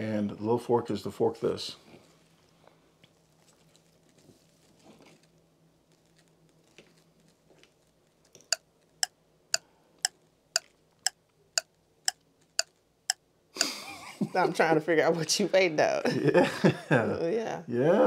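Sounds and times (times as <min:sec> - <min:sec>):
faint soft sounds: 0:01.4 - 0:09.0.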